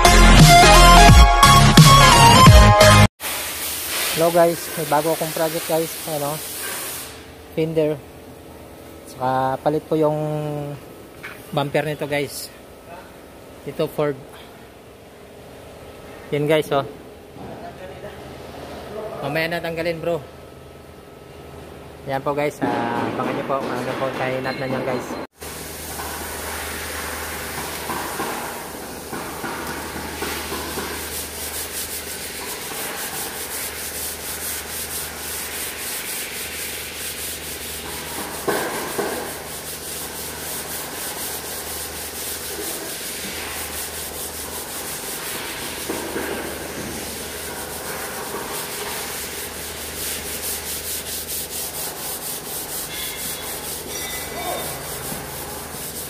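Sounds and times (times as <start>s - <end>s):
sandpaper rubbing on metal: 29.7s - 56.0s.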